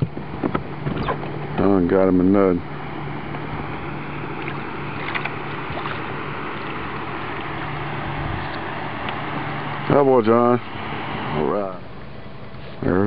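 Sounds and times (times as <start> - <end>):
boat motor humming: 0.0 - 13.0
water noise: 0.0 - 13.0
wind: 0.0 - 13.0
fish splashing: 3.6 - 9.4.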